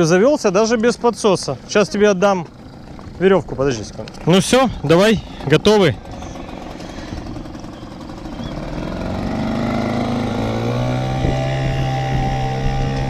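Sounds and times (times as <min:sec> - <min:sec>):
outboard motor running: 0:00.0 - 0:13.0.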